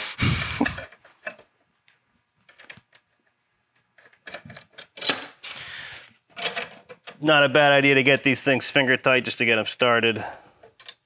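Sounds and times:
small metal clicks and taps: 10.6 - 11.0.

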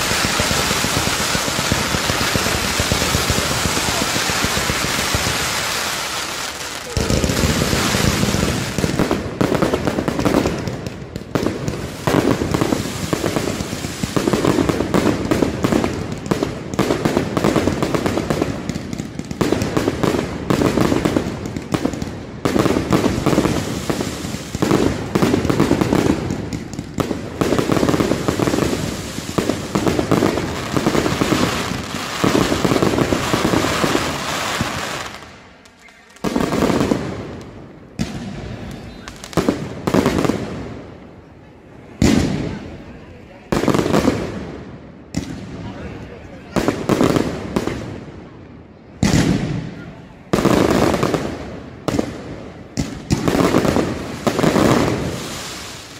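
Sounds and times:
crackling aerial bursts: 0.0 - 9.2
firecracker bangs: 0.0 - 35.2.

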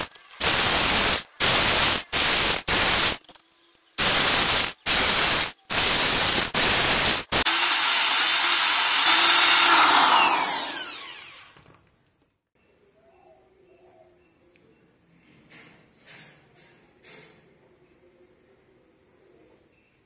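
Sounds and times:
electric drill boring metal: 0.0 - 3.2, 4.0 - 11.6.

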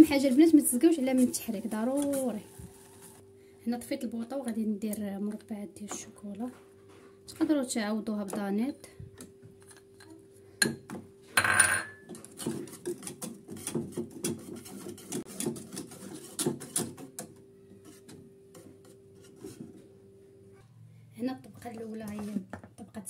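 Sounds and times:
whisk scraping saucepan: 0.1 - 3.2, 12.1 - 17.2, 17.8 - 19.8.

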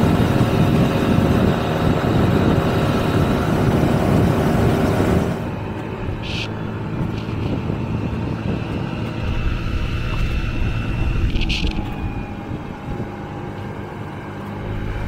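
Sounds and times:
moped engine running: 0.0 - 15.0
wind rushing over microphone: 0.0 - 15.0.

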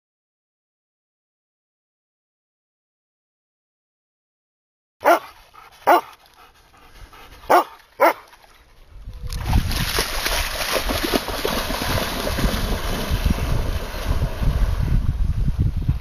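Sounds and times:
dog barking: 5.0 - 6.1, 7.5 - 8.2
wind buffeting microphone: 8.9 - 16.0.

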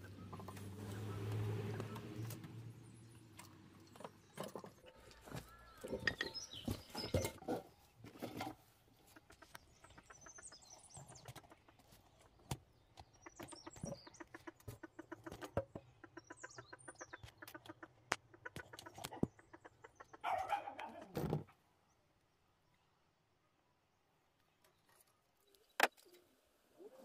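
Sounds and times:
small birds chirping: 0.0 - 27.0
chickens clucking: 3.4 - 21.3.

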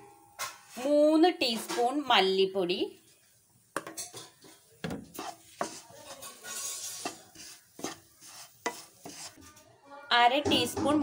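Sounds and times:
light sizzle: 0.0 - 9.7
spatula scraping a pan: 4.0 - 9.6.

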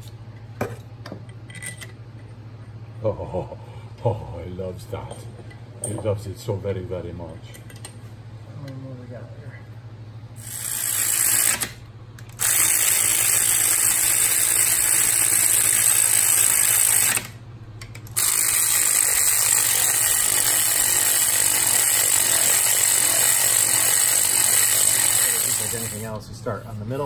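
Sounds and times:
power ratchet whirring: 10.4 - 17.4, 18.0 - 26.2.

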